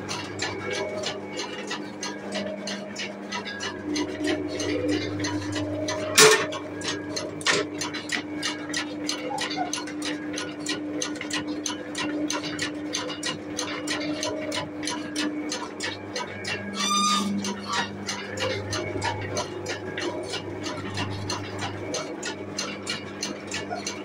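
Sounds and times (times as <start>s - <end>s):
electric motor hum: 16.6s - 22.6s.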